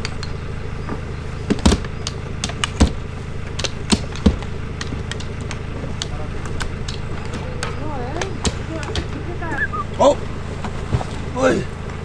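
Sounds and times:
sharp knocks and clicks: 0:00.0 - 0:09.6
low mechanical hum: 0:00.0 - 0:12.0.

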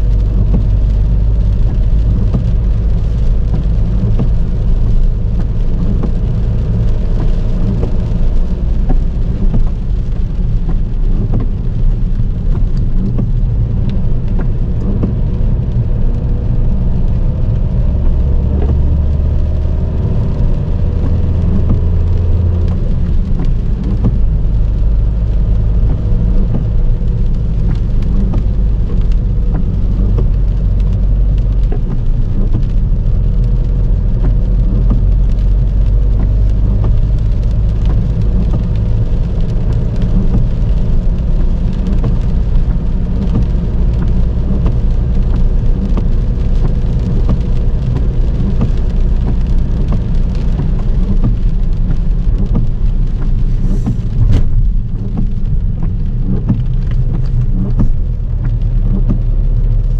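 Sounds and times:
car rumbling on road: 0:00.0 - 0:59.9
heavy rain on car body: 0:00.0 - 0:59.9.

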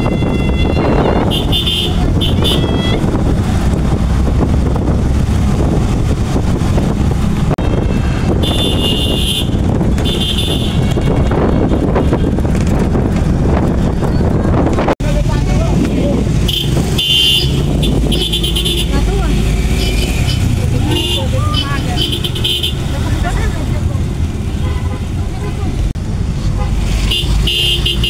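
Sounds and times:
vehicle horns honking: 0:00.0 - 0:03.1, 0:07.6 - 0:12.4, 0:16.4 - 0:23.4, 0:24.4 - 0:25.8, 0:26.6 - 0:28.0
low rumble of vehicles: 0:00.0 - 0:28.0.

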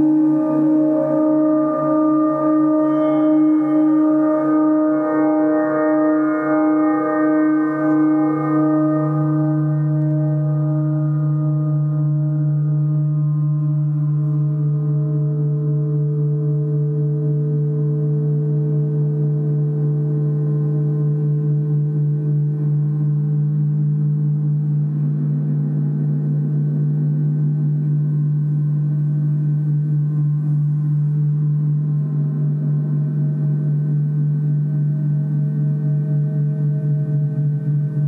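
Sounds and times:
gongs ringing: 0:00.0 - 0:11.6.

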